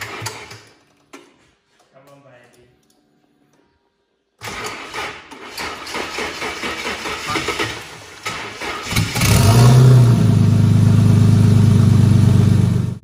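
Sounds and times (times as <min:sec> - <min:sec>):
car engine cranking and idling: 0:04.5 - 0:13.0.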